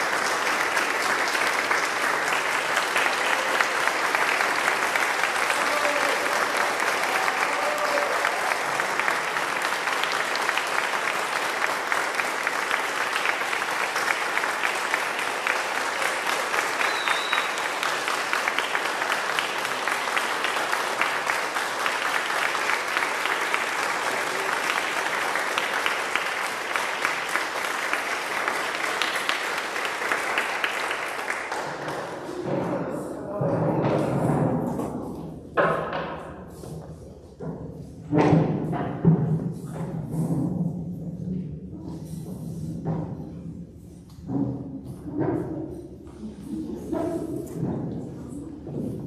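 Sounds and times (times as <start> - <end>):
audience applauding: 0.0 - 32.5.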